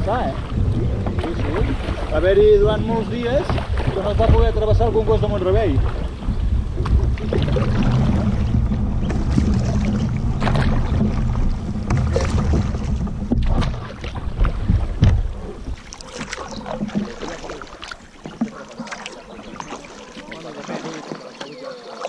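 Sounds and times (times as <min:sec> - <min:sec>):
low rumble: 0:00.0 - 0:17.3
paddle splashing in water: 0:00.0 - 0:22.0.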